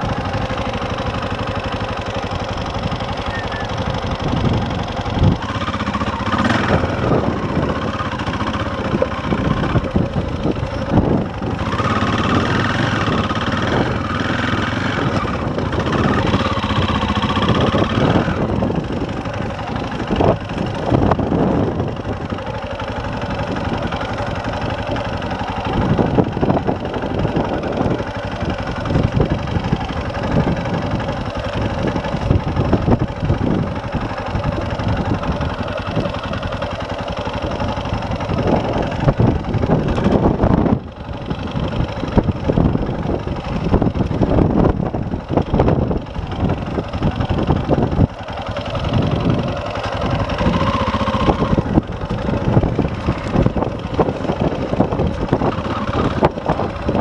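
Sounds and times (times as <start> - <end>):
dirt bike engine revving: 0.0 - 57.0.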